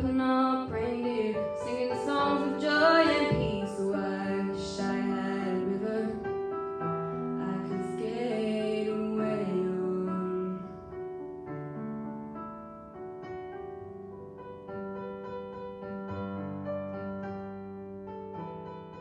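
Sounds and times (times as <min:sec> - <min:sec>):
girl singing with vibrato: 0:00.0 - 0:06.2, 0:07.4 - 0:10.7
slow piano chords: 0:00.0 - 0:19.0.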